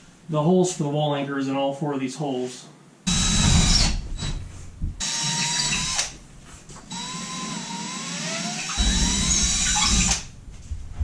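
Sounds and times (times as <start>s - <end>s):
cordless drill boring drywall: 3.1s - 4.4s, 5.0s - 6.1s, 6.9s - 10.3s.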